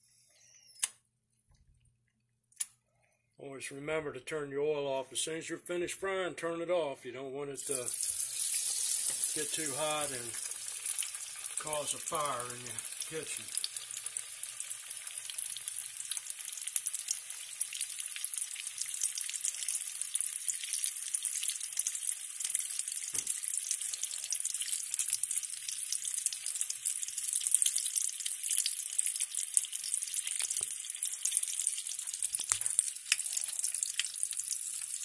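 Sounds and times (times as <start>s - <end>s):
food deep-frying in oil: 7.6s - 35.0s.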